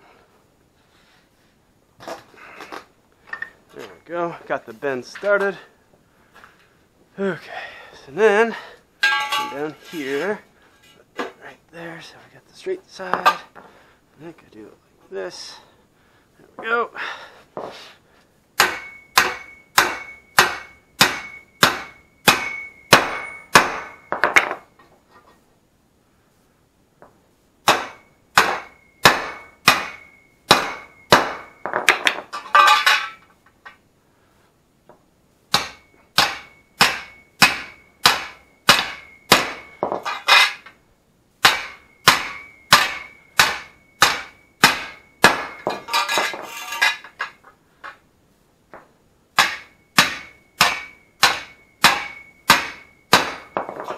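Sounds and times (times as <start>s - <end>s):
hammer ringing on metal tube: 9.0s - 9.7s, 18.6s - 24.5s, 27.7s - 32.0s, 35.5s - 40.2s, 41.4s - 46.0s, 49.4s - 53.8s.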